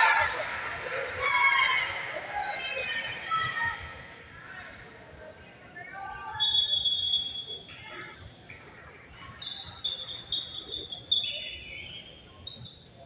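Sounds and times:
shoes squeaking on gym floor: 8.8 - 13.0.

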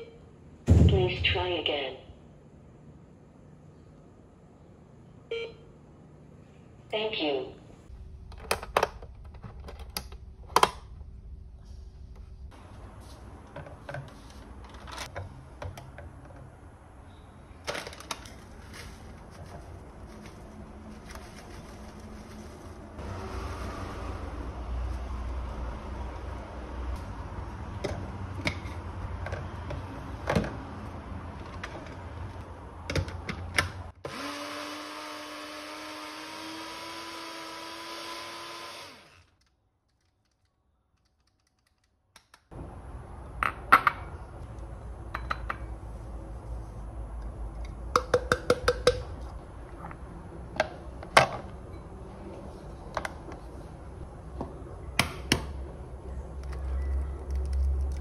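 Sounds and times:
blender motor grinding: 34.0 - 39.3.

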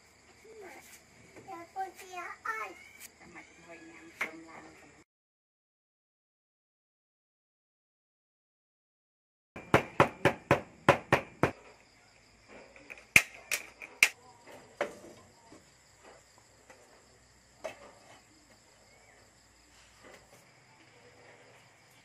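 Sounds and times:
crickets chirring: 0.0 - 5.0, 9.6 - 22.0.

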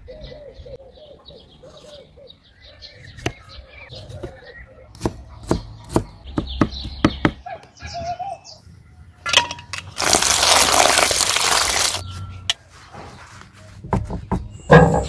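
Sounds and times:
water pouring into metal bowl: 10.0 - 12.0.

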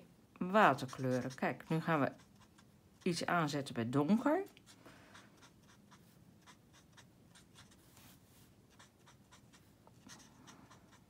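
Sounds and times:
marker tip scratching on cardstock: 0.6 - 3.2, 4.6 - 8.1, 8.7 - 11.0.

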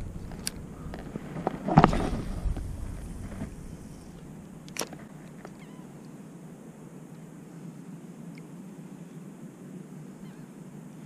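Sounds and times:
wind and water rush: 0.0 - 11.0.

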